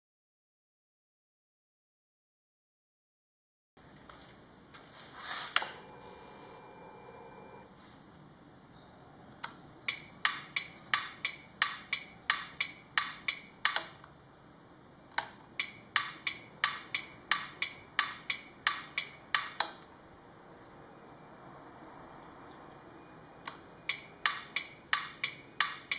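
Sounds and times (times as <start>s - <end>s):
turn signal clicker ticking: 9.4s - 13.9s, 23.4s - 25.9s.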